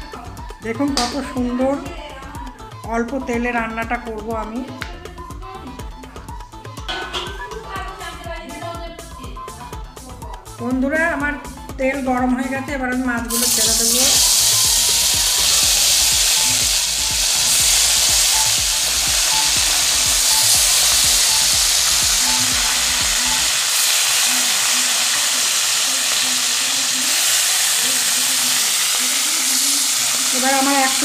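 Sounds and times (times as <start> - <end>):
fish sizzling in hot oil: 13.3 - 31.0.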